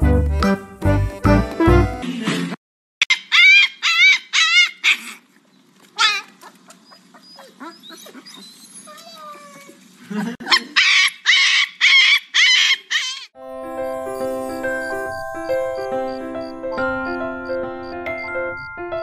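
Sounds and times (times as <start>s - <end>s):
puppy yipping: 3.0s - 5.2s, 6.0s - 9.8s, 10.5s - 13.3s
puppy whimpering: 6.0s - 9.8s.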